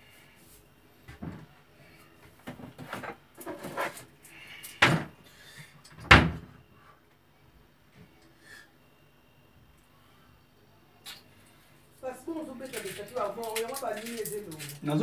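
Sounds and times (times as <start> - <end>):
things clattering in cupboard: 2.4 - 4.1
cupboard door opening and shutting: 4.8 - 5.1, 5.9 - 6.6.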